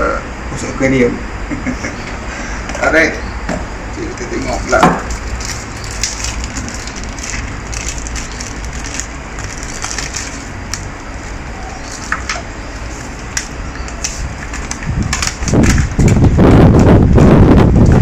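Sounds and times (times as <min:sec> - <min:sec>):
steady low hum: 0:00.0 - 0:18.0
plastic bag crinkling: 0:04.5 - 0:16.3
sharp crackles: 0:05.1 - 0:10.9
paper rustling: 0:05.1 - 0:16.3.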